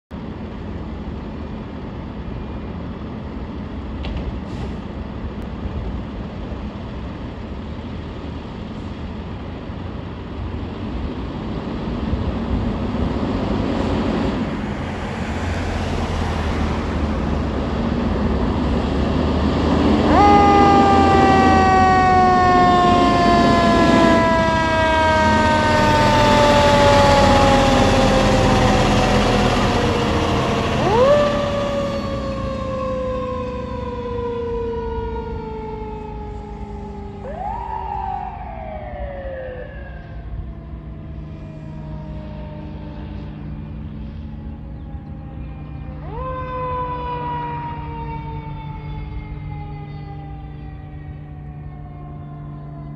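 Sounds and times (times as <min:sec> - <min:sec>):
diesel engine rumbling: 0:00.1 - 0:52.9
fire truck siren winding: 0:19.8 - 0:42.8.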